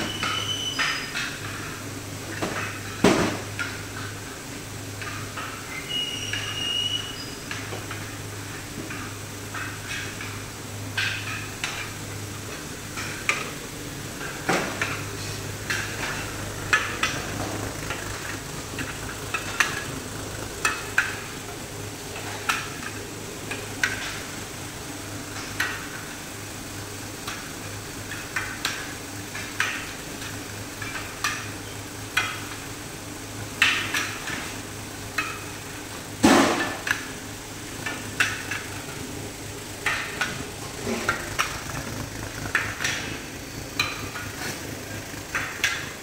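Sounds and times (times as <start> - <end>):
sharp metallic clicks and clatters: 39.8 - 46.0.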